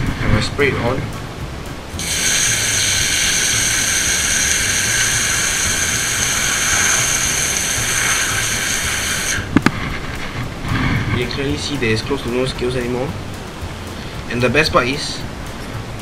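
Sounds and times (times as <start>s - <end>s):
water jet spraying onto fish: 1.9s - 9.6s.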